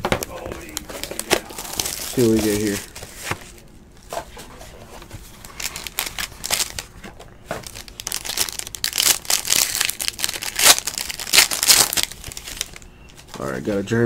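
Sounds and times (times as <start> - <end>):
foil wrapper crinkling: 0.4 - 3.4, 5.3 - 13.4.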